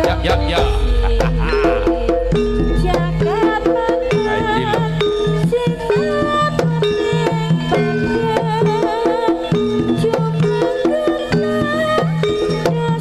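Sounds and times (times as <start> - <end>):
gamelan notes: 0.0 - 13.0
hand drums beating: 0.0 - 13.0
wavering high melody: 0.0 - 13.0.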